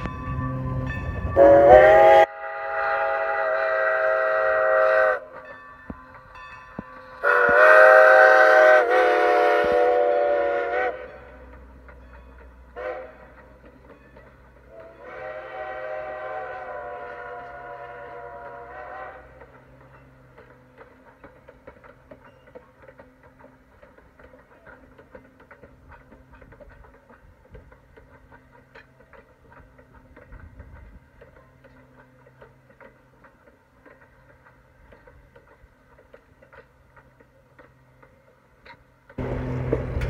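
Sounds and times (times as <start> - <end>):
steam locomotive chime whistle: 0.0 - 20.3
train wheels clattering: 0.0 - 40.0.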